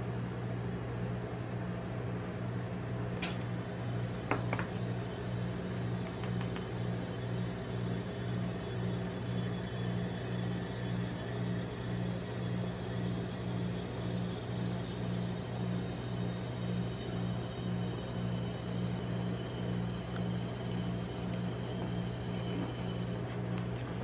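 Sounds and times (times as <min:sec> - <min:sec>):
refrigeration unit humming: 0:00.0 - 0:24.0.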